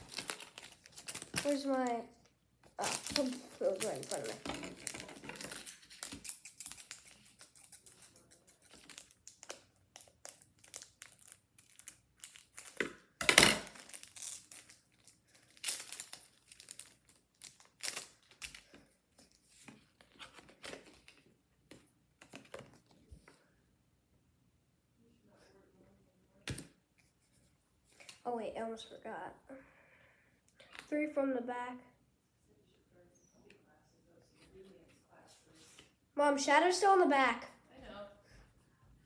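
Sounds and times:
foil wrapper crinkling and tearing: 0.0s - 1.9s, 2.8s - 13.0s, 13.6s - 18.7s
cards being handled: 2.7s - 23.4s.

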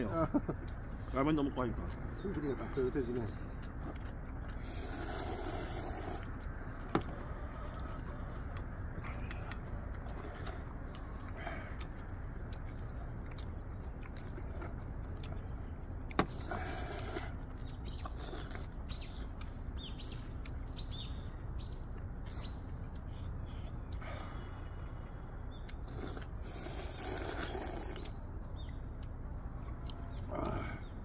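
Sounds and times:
low background rumble: 0.0s - 31.0s
people slurping noodles: 4.5s - 6.4s, 16.2s - 17.4s, 25.8s - 28.1s.

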